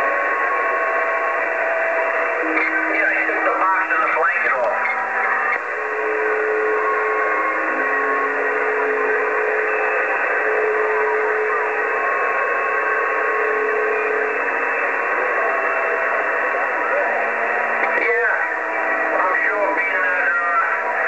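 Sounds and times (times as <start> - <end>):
whistling radio tones: 0.0 - 21.0
radio static: 1.4 - 6.6, 13.8 - 21.0.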